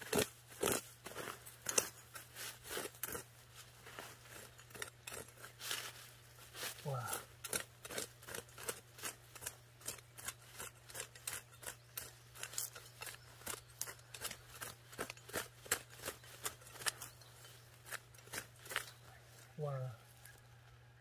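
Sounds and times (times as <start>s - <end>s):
pruning shears snipping: 0.0s - 19.1s.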